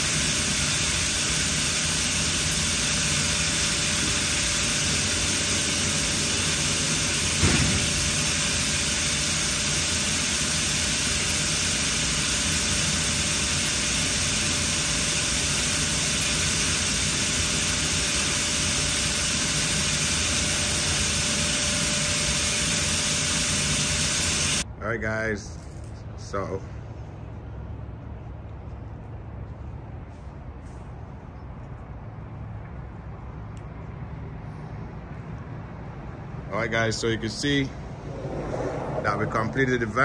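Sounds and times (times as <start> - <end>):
machine humming: 0.0 - 24.6, 37.6 - 40.0
sharp knock: 7.4 - 7.9.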